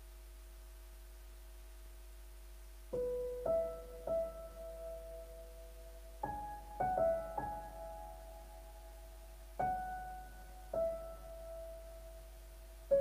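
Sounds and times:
keyboard playing slow melody: 3.0s - 13.0s.

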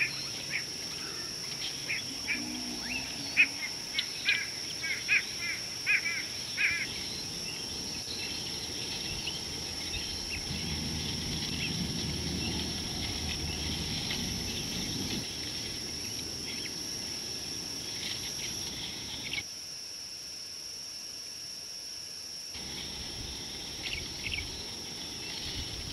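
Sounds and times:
faint bird twittering: 0.0s - 16.8s
high insect drone: 0.0s - 25.9s
low rumble: 8.4s - 16.5s.

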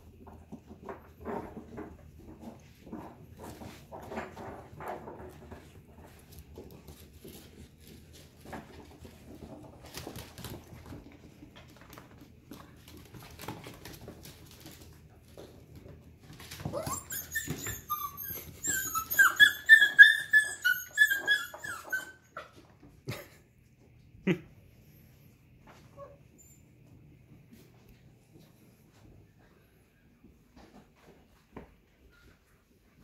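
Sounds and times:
puppy paws scuffling on floor: 0.1s - 23.9s, 24.8s - 33.0s
puppy yips and whines: 16.6s - 22.6s.

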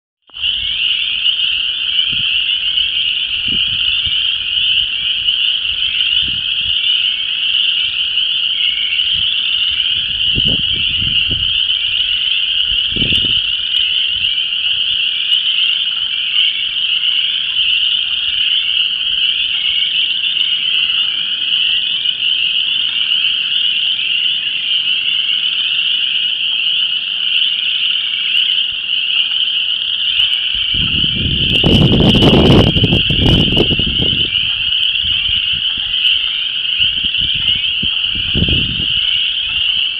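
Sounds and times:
frogs calling in chorus: 0.3s - 39.9s
wind buffeting microphone: 2.0s - 6.9s, 9.1s - 14.8s, 30.5s - 39.9s.

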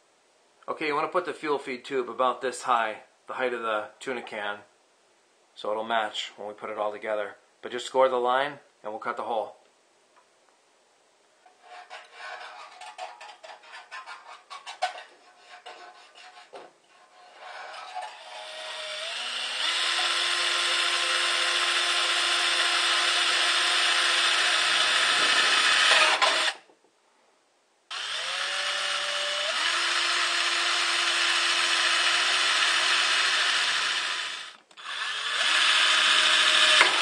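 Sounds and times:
electric drill boring through steel: 17.3s - 26.6s, 27.9s - 37.0s.

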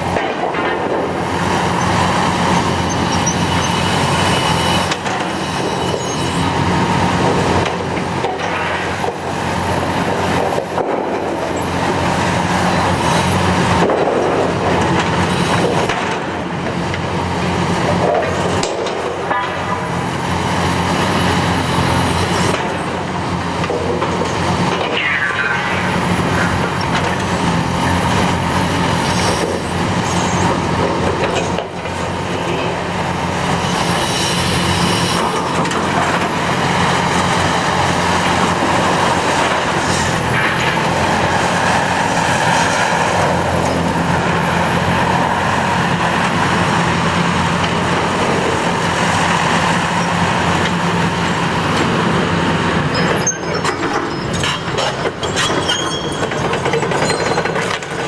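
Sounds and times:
excavator diesel engine: 0.0s - 58.0s
concrete clanking and crunching: 52.9s - 58.0s.

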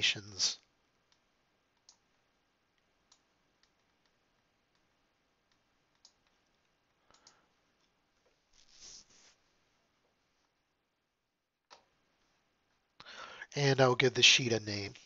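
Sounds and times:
computer mouse clicks: 1.1s - 2.2s, 2.8s - 8.0s, 11.7s - 11.9s.

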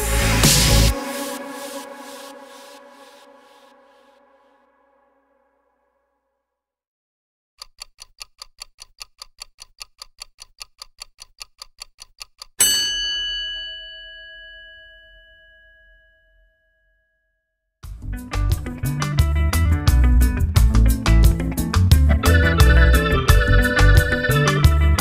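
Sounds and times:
clock ticking: 7.6s - 12.6s
bell ding: 12.6s - 17.2s.

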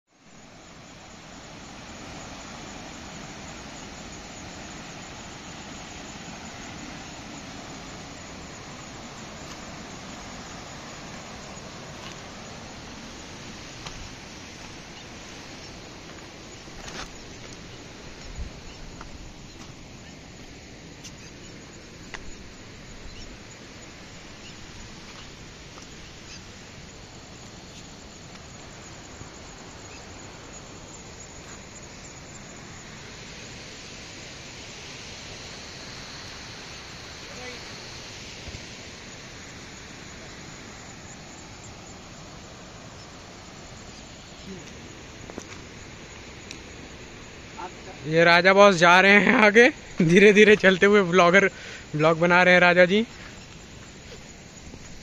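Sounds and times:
river flowing over stones: 0.2s - 20.9s.

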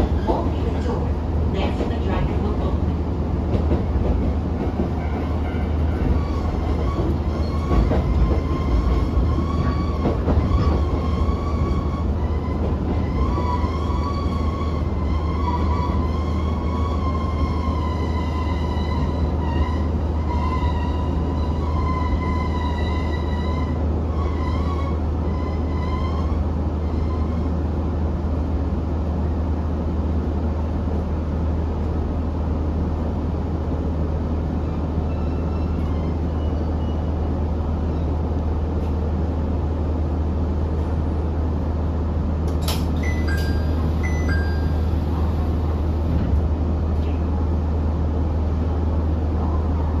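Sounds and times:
train engine hum and rumble: 0.0s - 50.0s
wheel and brake squeal: 5.0s - 27.5s, 34.6s - 37.2s.

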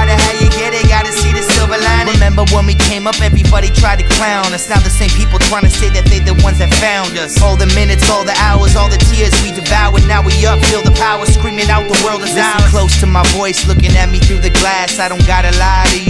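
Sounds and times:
rapping over a bass beat: 0.0s - 16.0s.

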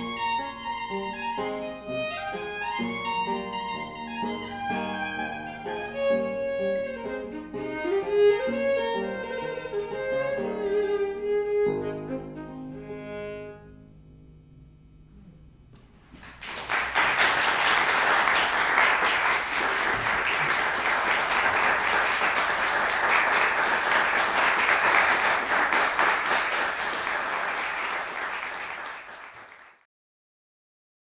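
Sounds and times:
audience applauding: 16.2s - 29.8s.

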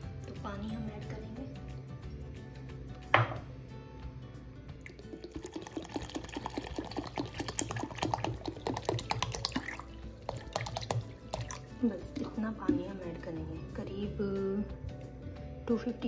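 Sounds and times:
sharp knock: 3.2s - 3.4s
water pouring and splashing: 4.8s - 12.4s.

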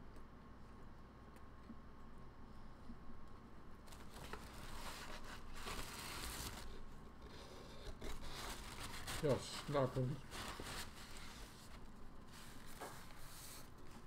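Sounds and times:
rustling and crinkling handling noise: 3.3s - 14.0s.

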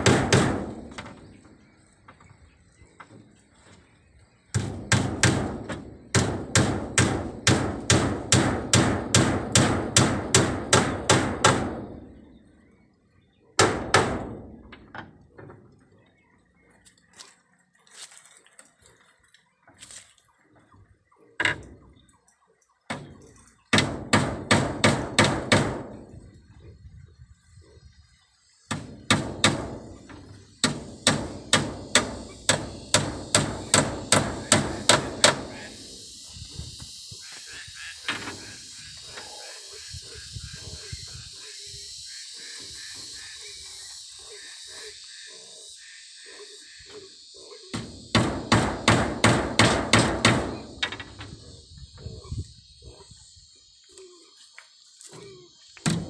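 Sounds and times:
hammer striking bamboo slats: 0.0s - 1.2s, 4.5s - 12.0s, 13.6s - 15.0s, 22.9s - 26.0s, 28.7s - 35.5s, 47.7s - 51.3s
high insect buzz: 27.8s - 56.0s.

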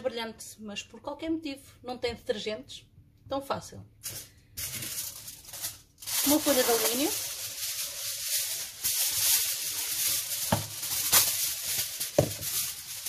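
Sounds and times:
aluminium foil crinkling: 4.0s - 13.0s.

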